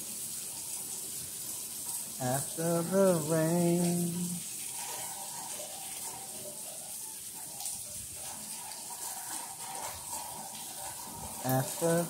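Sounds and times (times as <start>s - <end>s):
heavy rain pouring: 0.0s - 12.0s.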